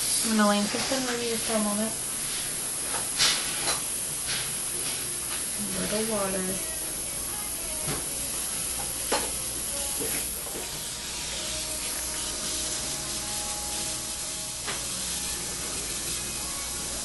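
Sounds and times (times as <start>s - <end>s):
dental water spray and suction hiss: 0.0s - 17.0s.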